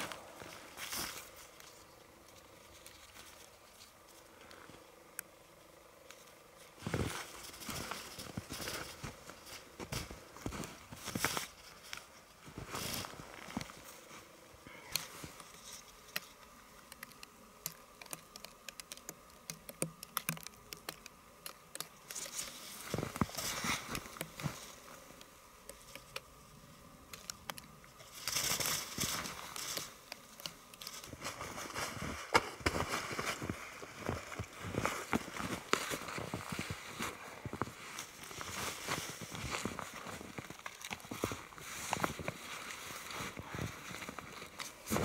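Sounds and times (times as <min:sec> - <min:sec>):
snow crunching underfoot: 0:00.0 - 0:03.6, 0:06.6 - 0:14.4, 0:22.1 - 0:25.1, 0:30.8 - 0:45.0
rustle: 0:00.0 - 0:45.0.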